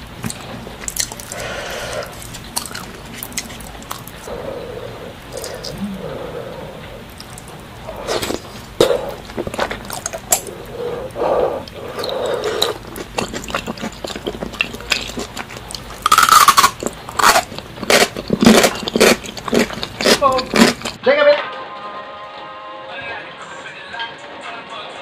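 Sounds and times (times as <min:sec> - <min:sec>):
man chewing food: 0:00.0 - 0:21.0
wet mouth smacks and crunches: 0:02.1 - 0:04.2.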